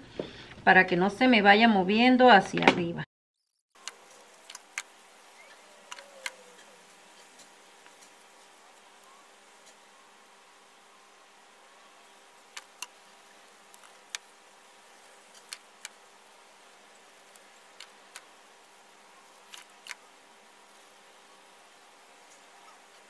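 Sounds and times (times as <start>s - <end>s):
cardstock clicking and crackling: 3.7s - 9.8s, 12.1s - 21.2s
faint steady hum: 3.8s - 23.0s.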